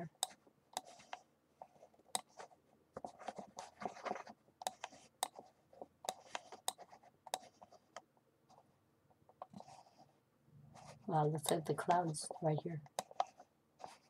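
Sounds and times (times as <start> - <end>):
computer mouse clicks: 0.2 - 1.2, 2.1 - 2.4, 4.6 - 5.4, 6.0 - 8.1, 11.4 - 12.0, 12.8 - 14.0
mouse sliding on desk: 9.6 - 10.1, 10.7 - 11.6.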